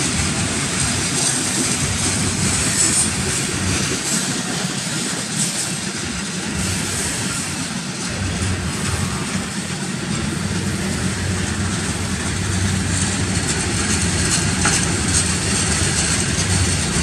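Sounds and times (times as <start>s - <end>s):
freight cars rumbling on rails: 0.0s - 17.0s.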